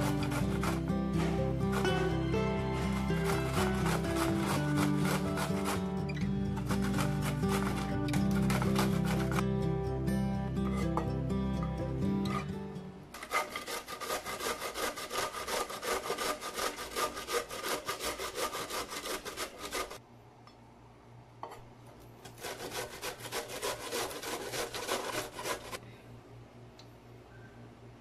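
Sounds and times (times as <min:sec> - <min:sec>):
cauliflower grating on metal grater: 0:00.0 - 0:09.4, 0:13.2 - 0:20.0, 0:22.3 - 0:25.8.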